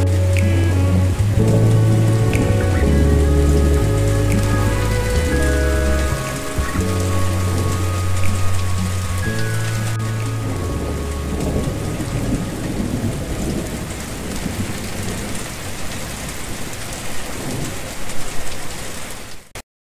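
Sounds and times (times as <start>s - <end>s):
sustained song notes: 0.0s - 14.6s
low thunder: 0.0s - 17.8s
steady rain: 0.0s - 19.6s.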